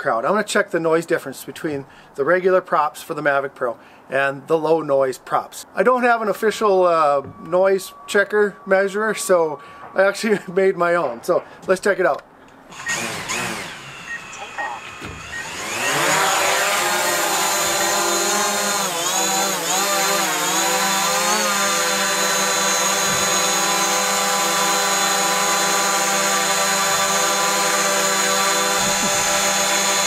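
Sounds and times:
quadcopter drone whining: 12.7s - 23.8s, 24.5s - 30.0s.

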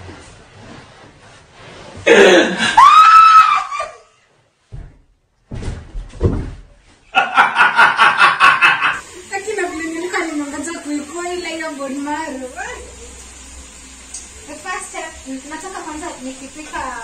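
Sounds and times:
loud pulsing laughter: 7.1s - 9.0s.

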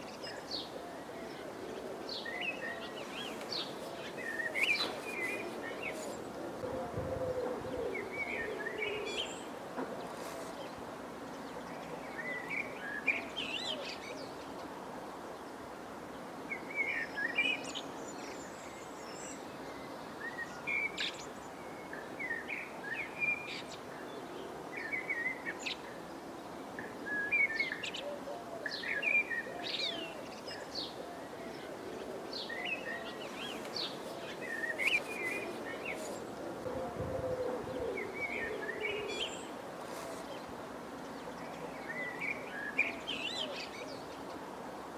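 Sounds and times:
small songbirds chirping: 0.0s - 6.6s, 16.2s - 44.9s
faint low background noise: 0.0s - 44.9s.

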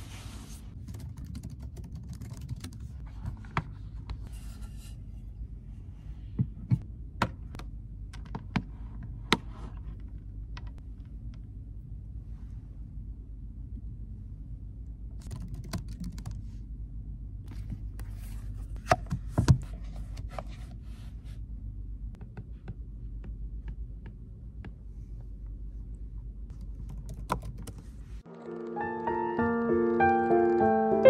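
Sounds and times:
low room hum: 0.0s - 28.7s
piano music: 28.3s - 31.0s.

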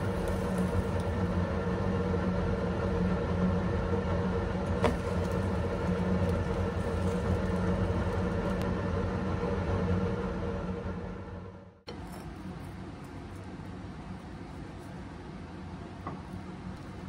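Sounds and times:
low mechanical hum: 0.0s - 17.0s.

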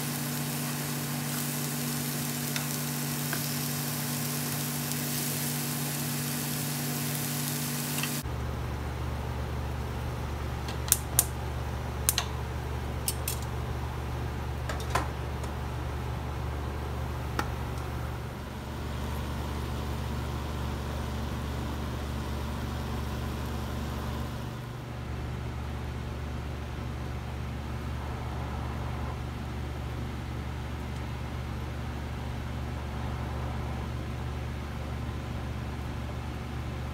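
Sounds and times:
meat sizzling in a frying pan: 0.0s - 8.2s.

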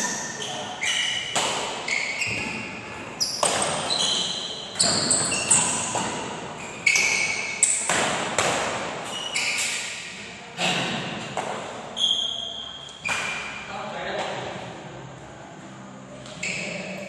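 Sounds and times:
shoes squeaking on court: 0.0s - 7.9s, 9.0s - 10.2s, 11.2s - 13.6s, 16.1s - 17.0s
rackets hitting shuttlecock: 0.8s - 11.8s, 12.9s - 13.6s.

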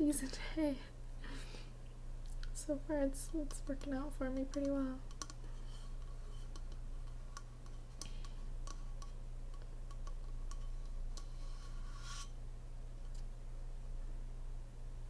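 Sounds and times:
steady low hum: 0.0s - 15.0s
scratchy rub: 11.2s - 12.4s.

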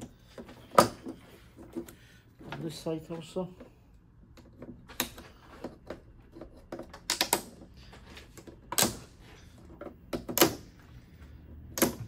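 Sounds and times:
plastic latches clicking and snapping: 6.7s - 7.5s.

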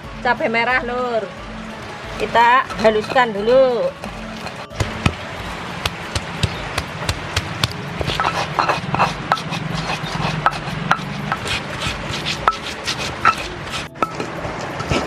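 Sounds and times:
stone scraping rubs: 2.6s - 5.2s, 7.6s - 15.0s
stone pestle knocking in mortar: 2.7s - 5.2s, 5.8s - 14.3s.

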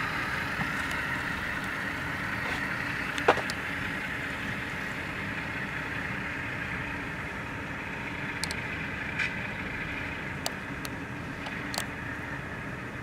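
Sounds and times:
model diesel engine sound: 0.0s - 13.0s
wheels rolling on track: 0.0s - 13.0s
faint clicks: 8.4s - 8.6s.

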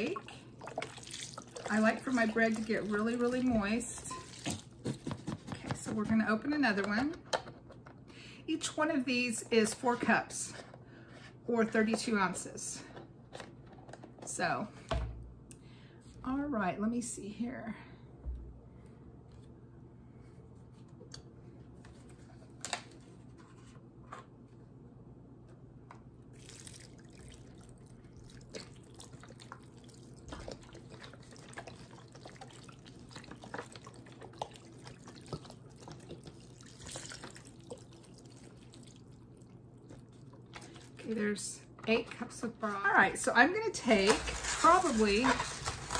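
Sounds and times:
broth pouring and splashing: 0.0s - 4.8s, 26.3s - 41.0s.

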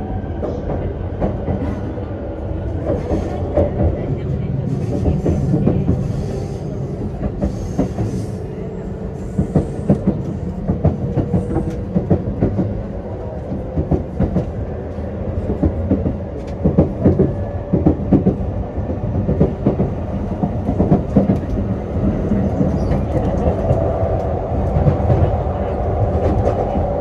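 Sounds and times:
train wheels rumbling: 0.0s - 27.0s.

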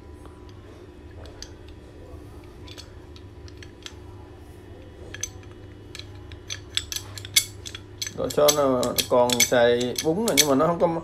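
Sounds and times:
steady low hum: 0.0s - 11.0s
metal wrench clicking: 2.6s - 4.0s, 5.0s - 10.8s.

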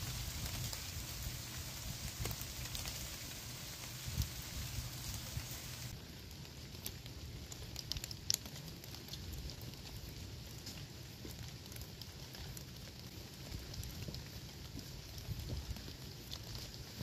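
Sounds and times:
low steady rumble: 0.0s - 6.0s
faint crackles and clicks: 0.0s - 17.0s.

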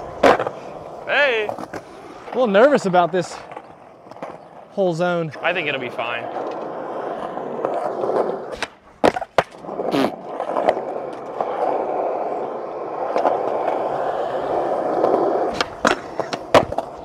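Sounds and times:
skateboard clacks and pop: 0.0s - 0.6s, 3.5s - 4.5s, 6.4s - 11.7s, 15.0s - 17.0s
skateboard scrape: 0.0s - 17.0s
skateboard wheels rolling on asphalt: 0.0s - 17.0s.

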